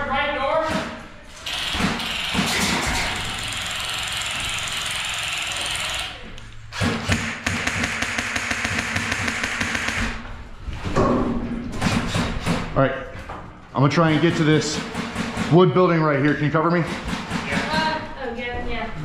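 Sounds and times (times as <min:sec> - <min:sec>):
airsoft rifle full-auto firing: 0:07.0 - 0:10.2.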